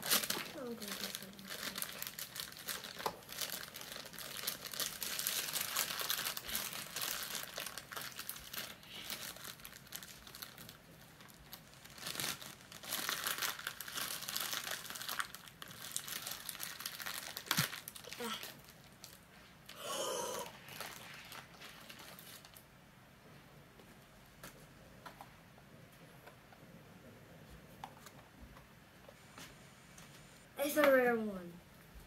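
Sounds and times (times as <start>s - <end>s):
foil pouch crinkling: 0.0s - 19.2s, 20.6s - 22.6s.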